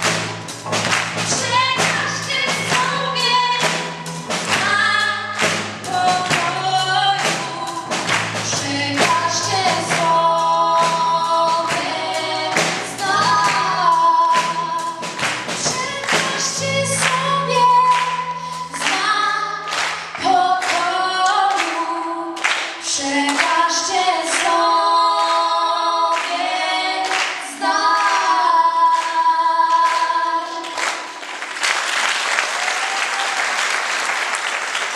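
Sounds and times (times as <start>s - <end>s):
audience applause: 0.0s - 2.0s, 30.6s - 34.9s
women singing in harmony: 1.3s - 30.8s.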